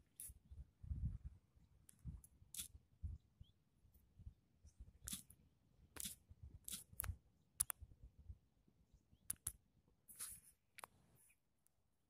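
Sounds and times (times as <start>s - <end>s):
faint irregular clicks: 5.0s - 7.8s, 9.2s - 11.8s.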